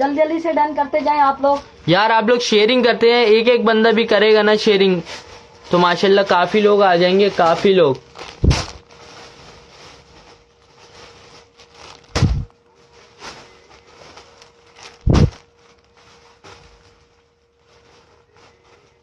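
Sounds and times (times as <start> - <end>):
plastic bags and fabric rustling: 0.0 - 19.0
dull thumps: 8.4 - 8.8, 12.1 - 12.5, 15.0 - 15.4.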